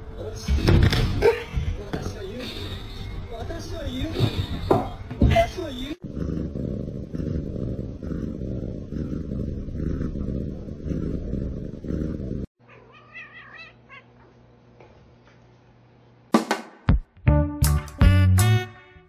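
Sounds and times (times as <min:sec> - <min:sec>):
cat purring loudly: 0:06.0 - 0:12.5.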